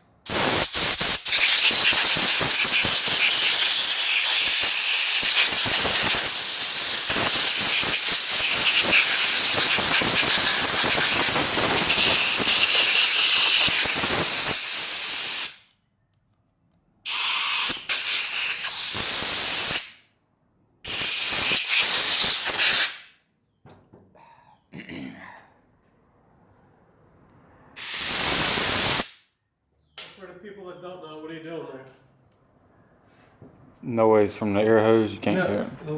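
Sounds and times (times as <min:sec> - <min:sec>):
compressed air blow gun hissing: 0:00.2 - 0:15.6, 0:17.1 - 0:20.0, 0:20.8 - 0:23.0, 0:27.8 - 0:29.2.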